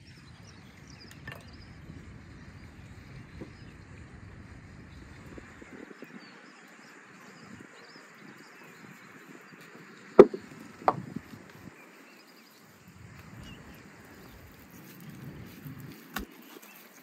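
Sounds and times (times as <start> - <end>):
quiet outdoor background: 0.0 - 17.0
knocks on wooden table: 10.2 - 11.0.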